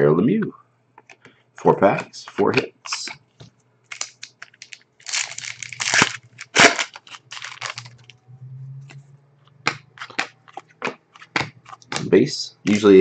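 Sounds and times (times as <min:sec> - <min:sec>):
cards and packaging rustling: 0:03.9 - 0:08.2, 0:09.6 - 0:13.0
sharp crack: 0:05.1 - 0:07.8.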